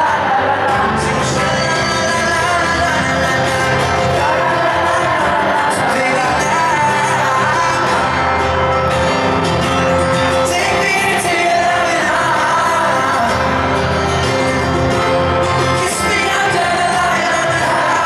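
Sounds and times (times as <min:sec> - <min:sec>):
man singing pop ballad: 0:00.0 - 0:09.2, 0:09.8 - 0:18.0
electric guitar and band: 0:00.0 - 0:18.0.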